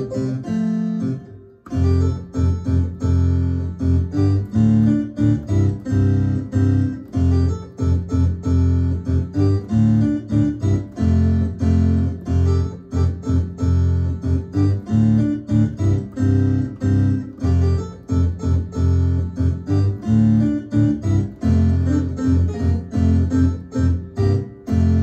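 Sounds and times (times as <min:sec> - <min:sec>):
digital piano playing: 0:00.0 - 0:25.0.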